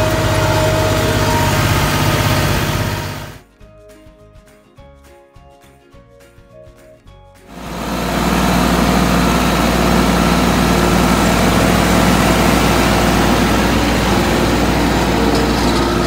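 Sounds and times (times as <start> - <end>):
tractor diesel engine under load: 0.0 - 3.4, 7.5 - 16.0.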